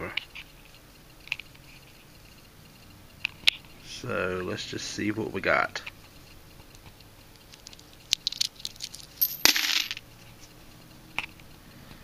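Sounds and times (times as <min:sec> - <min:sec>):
coins clinking: 0:07.6 - 0:10.0.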